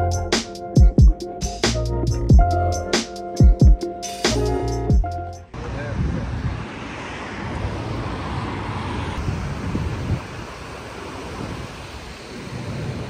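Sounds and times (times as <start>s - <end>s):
city traffic rumble: 4.1s - 13.0s
wind buffeting microphone: 5.6s - 13.0s.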